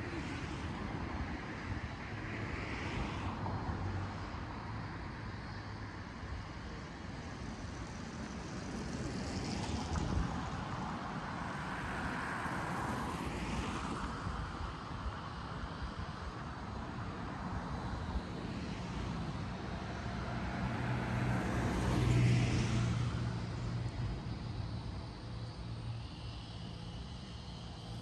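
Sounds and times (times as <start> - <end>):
hum of traffic: 0.0 - 28.0
vehicle passing: 20.0 - 24.2.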